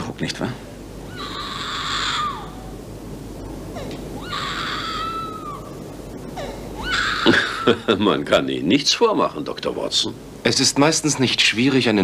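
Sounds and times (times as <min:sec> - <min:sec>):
high shrill cries: 0:01.0 - 0:02.8, 0:03.7 - 0:07.9.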